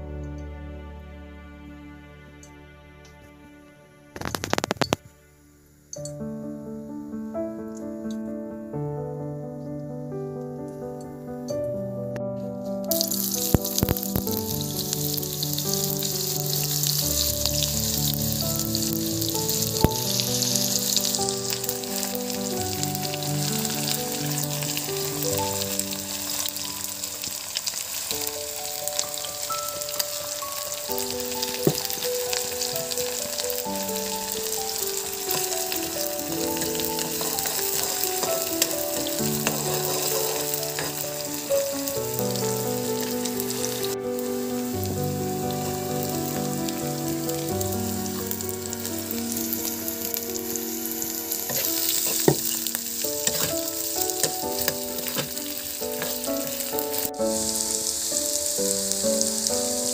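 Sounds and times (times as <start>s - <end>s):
background music with held notes: 0.0s - 59.9s
onions sizzling in oil: 12.9s - 59.9s.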